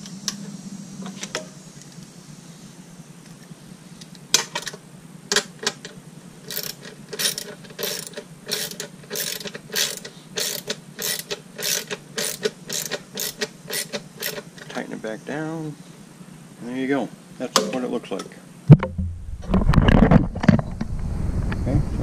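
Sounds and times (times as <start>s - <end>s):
ratchet wrench clicking: 6.4s - 14.7s.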